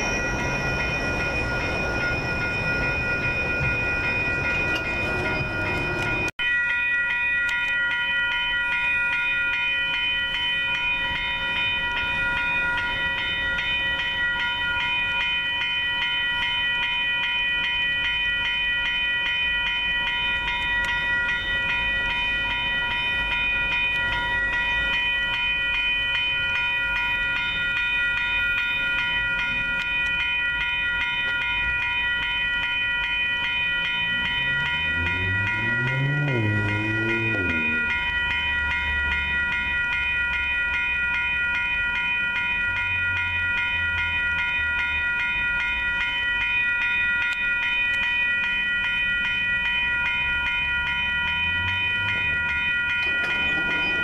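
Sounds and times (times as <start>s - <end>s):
train rumble: 0.0s - 6.3s, 51.2s - 54.0s
crossing warning bells ringing: 0.0s - 54.0s.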